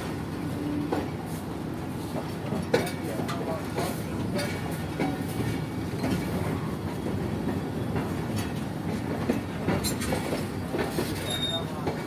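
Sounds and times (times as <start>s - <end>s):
train rumbling: 0.0s - 12.0s
wheels clattering over rails: 2.6s - 12.0s.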